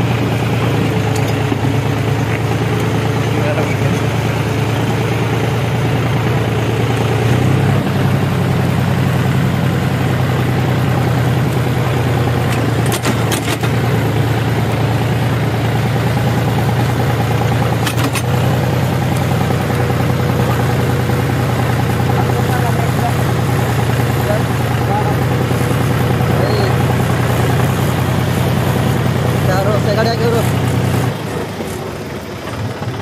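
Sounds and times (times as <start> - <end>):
tractor engine running: 0.0 - 33.0.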